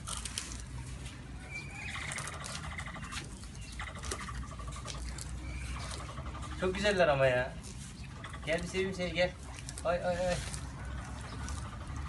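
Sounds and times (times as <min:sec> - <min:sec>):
animal chewing grass: 0:00.0 - 0:12.0
high-pitched animal calls: 0:01.4 - 0:07.2, 0:08.0 - 0:09.1, 0:10.3 - 0:12.0.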